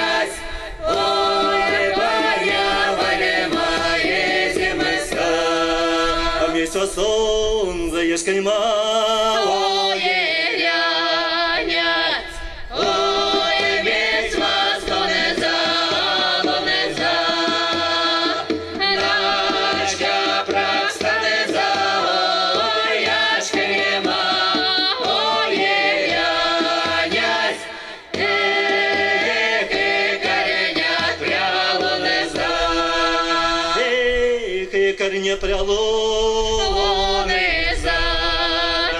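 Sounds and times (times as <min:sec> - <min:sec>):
hand drum beats: 0:00.0 - 0:06.8, 0:12.8 - 0:33.8
men and women singing folk song: 0:00.0 - 0:38.9.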